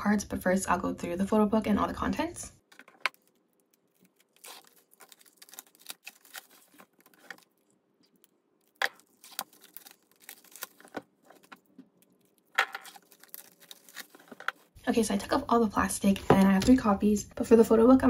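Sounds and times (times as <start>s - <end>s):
plastic shrink wrap crinkling: 2.7s - 14.8s.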